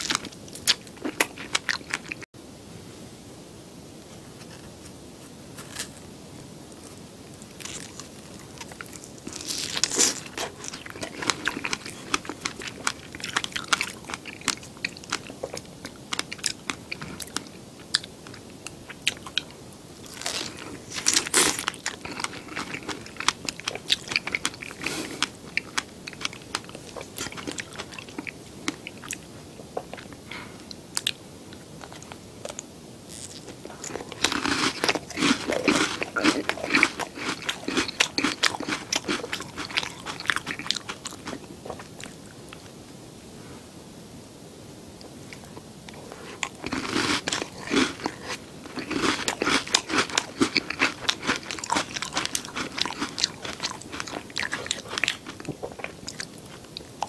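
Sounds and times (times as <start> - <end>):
crisp crunches: 6.8 - 15.3, 20.0 - 28.3
wet biting and chewing: 31.8 - 42.1, 46.4 - 56.6.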